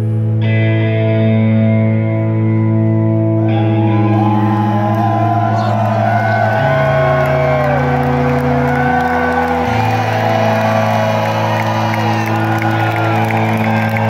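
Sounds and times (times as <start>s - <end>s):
audience whoops and cheers: 3.4s - 14.0s.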